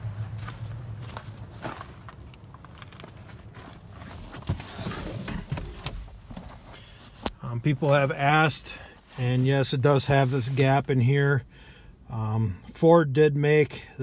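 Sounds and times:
footsteps on gravel: 0:00.0 - 0:04.3.

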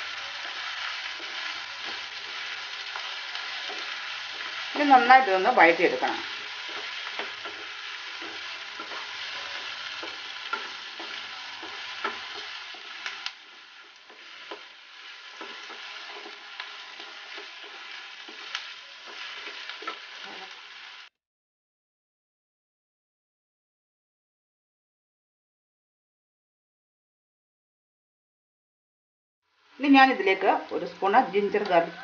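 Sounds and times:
onions sizzling in oil: 0:00.0 - 0:21.1, 0:29.4 - 0:32.0
wooden spatula scraping and tapping: 0:00.4 - 0:04.7, 0:05.9 - 0:20.6.

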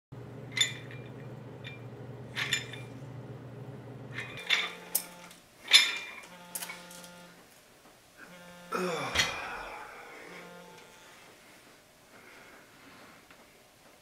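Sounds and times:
low steady hum: 0:00.2 - 0:13.4
weight plates clinking: 0:00.5 - 0:03.0, 0:04.2 - 0:06.8.

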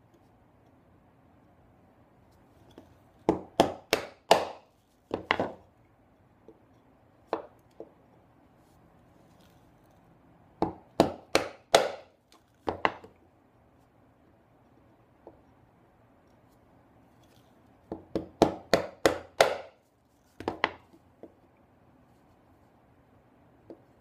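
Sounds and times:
mallet striking chisel: 0:03.3 - 0:04.6, 0:10.6 - 0:12.1, 0:17.9 - 0:19.8.

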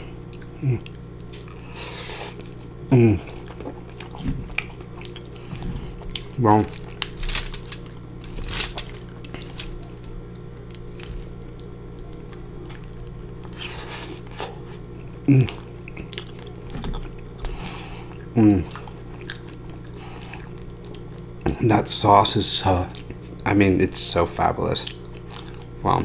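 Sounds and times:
person humming mmm: 0:00.0 - 0:03.8, 0:13.6 - 0:16.2, 0:17.6 - 0:18.8
soft chewing: 0:00.0 - 0:21.6, 0:22.8 - 0:23.5, 0:24.7 - 0:25.8
steady low hum: 0:00.0 - 0:26.0.

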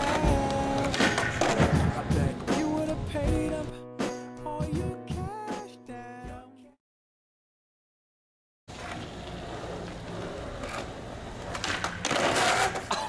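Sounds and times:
skateboard scraping crash: 0:00.0 - 0:02.1, 0:08.8 - 0:12.9
skateboard wheels rolling on concrete: 0:00.0 - 0:03.6, 0:08.7 - 0:13.0.

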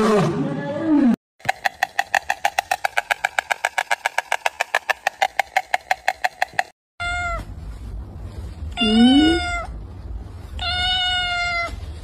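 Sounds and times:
rapid rhythmic clicks: 0:01.4 - 0:06.8.

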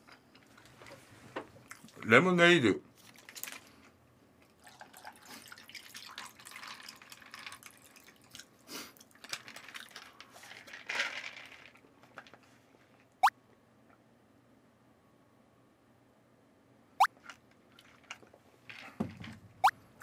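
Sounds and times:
lemonade pouring over ice: 0:04.6 - 0:11.7.

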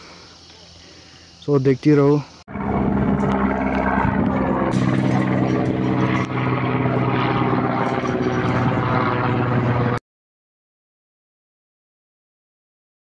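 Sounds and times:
helicopter rotor drone: 0:02.2 - 0:10.0.

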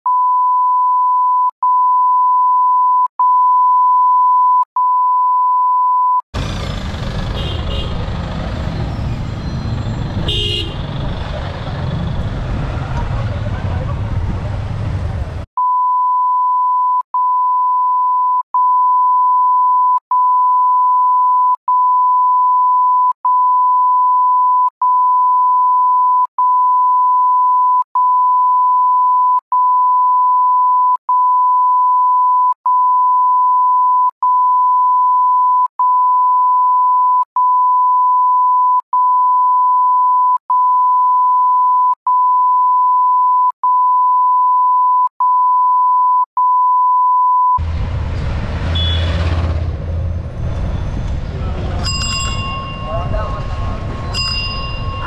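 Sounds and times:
traffic noise: 0:06.4 - 0:15.5, 0:47.6 - 0:55.0
steady electronic beep tone: 0:15.6 - 0:47.6.

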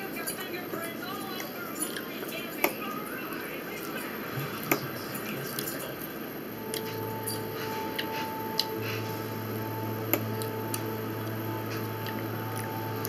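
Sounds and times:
faint steady hum: 0:00.0 - 0:13.0
soft wet chewing: 0:06.7 - 0:09.2.

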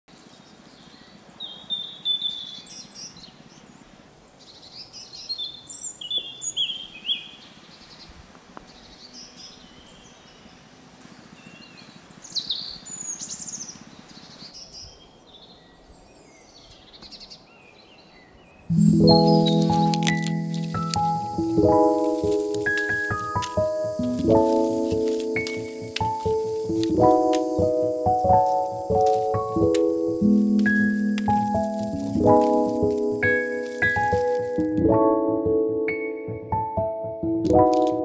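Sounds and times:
low outdoor hiss: 0:00.1 - 0:34.8
birds chirping: 0:00.1 - 0:35.4.

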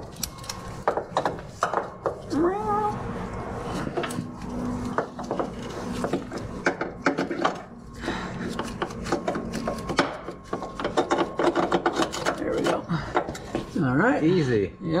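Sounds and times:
metal tools clicking and scraping: 0:00.0 - 0:02.3, 0:08.4 - 0:13.7.

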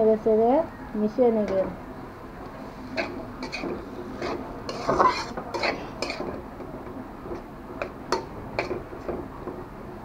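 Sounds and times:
metal spatula scraping a wok: 0:02.7 - 0:06.4.

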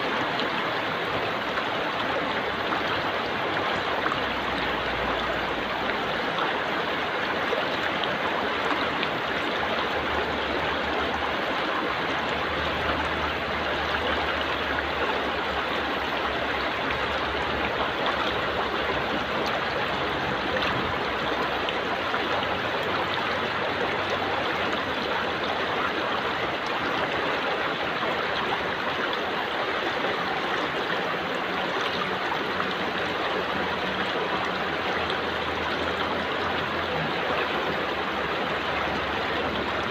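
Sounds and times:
stream rushing past rocks: 0:00.0 - 0:39.9.

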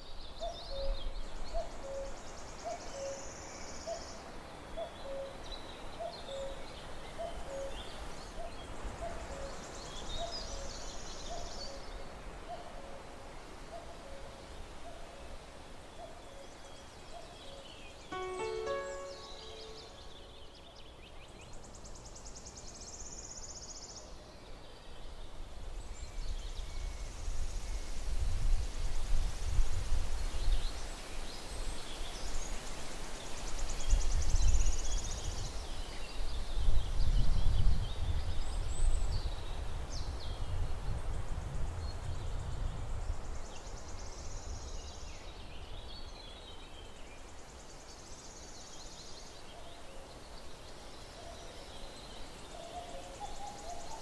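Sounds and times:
small birds singing: 0:30.2 - 0:54.0.

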